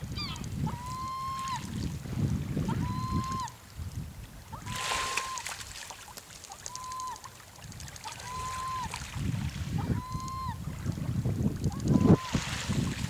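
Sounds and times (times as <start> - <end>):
gull calling: 0.1 - 1.7, 2.6 - 3.6, 4.5 - 5.6, 6.5 - 7.3, 8.0 - 9.0, 9.8 - 10.6.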